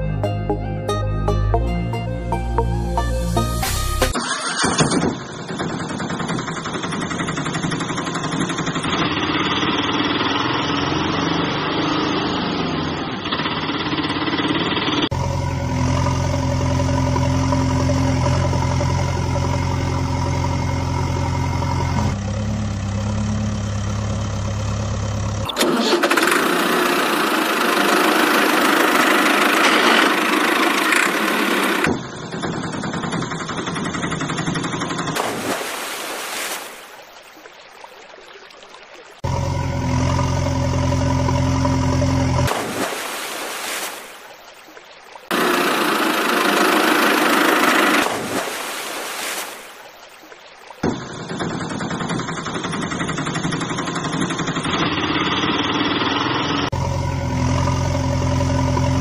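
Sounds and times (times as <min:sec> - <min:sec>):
vehicle engine running and idling: 0:01.6 - 0:35.3, 0:39.2 - 0:42.6, 0:45.3 - 0:48.2, 0:50.9 - 0:59.0.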